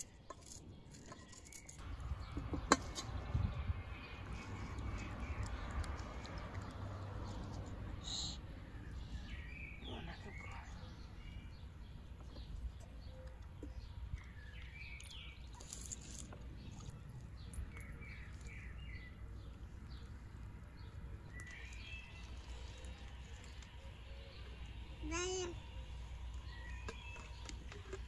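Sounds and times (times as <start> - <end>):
songbirds chirping: 0.0 - 28.0
steady low rumble: 1.8 - 12.8.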